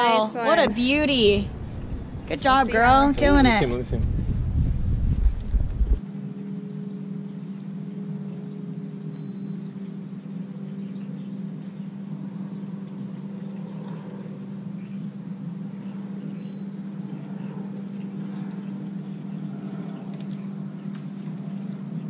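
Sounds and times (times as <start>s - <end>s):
boat motor running: 0.5s - 6.0s.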